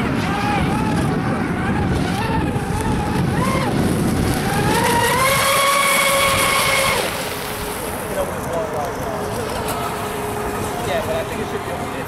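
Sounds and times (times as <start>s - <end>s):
toy boat motor whining: 0.0s - 8.1s
water spray rushing: 3.4s - 8.4s.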